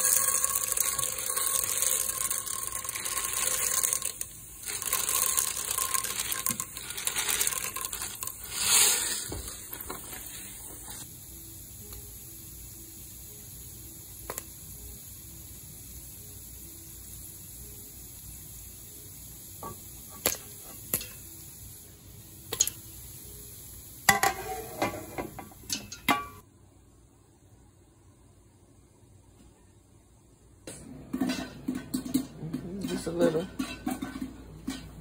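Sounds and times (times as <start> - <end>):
popcorn popping in metal pot: 0.0 - 11.0, 14.2 - 14.7, 19.6 - 21.4, 22.4 - 23.0, 24.0 - 26.4, 30.8 - 35.0
oil sizzling: 0.0 - 26.4.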